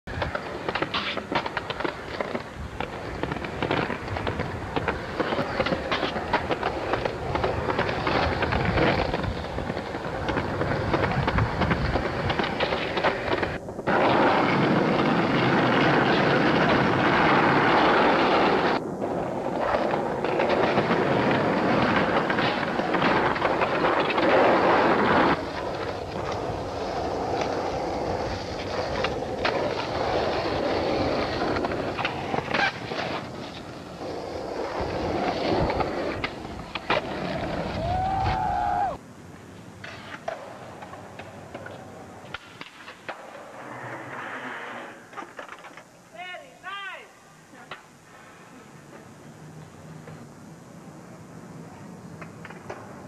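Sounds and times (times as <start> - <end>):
skateboard wheels rolling on pavement: 0.0 - 53.0
skateboard clacks: 0.1 - 39.0, 39.8 - 46.0, 52.0 - 53.0.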